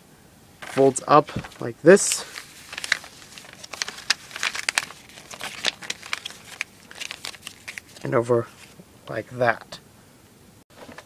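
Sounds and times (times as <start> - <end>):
paper crinkling: 0.6 - 8.8.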